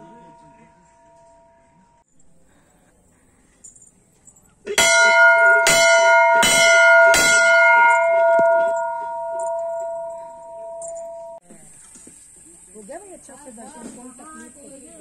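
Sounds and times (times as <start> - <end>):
brass bell ringing: 0.0 - 2.0, 4.7 - 11.4.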